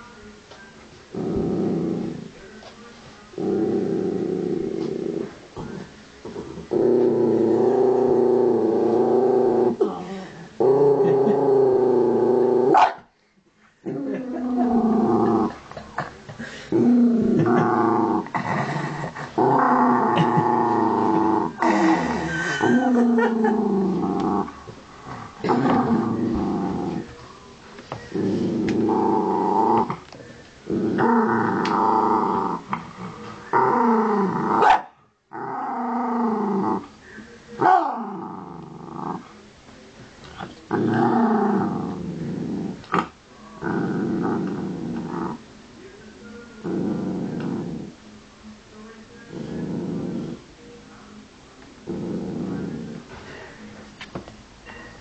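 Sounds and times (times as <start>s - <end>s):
dog growling: 1.1s - 2.3s, 3.4s - 12.8s, 13.8s - 16.1s, 16.7s - 27.1s, 28.1s - 34.7s, 35.3s - 37.0s, 37.6s - 39.3s, 40.4s - 45.4s, 46.6s - 48.0s, 49.3s - 50.5s, 51.8s - 53.5s.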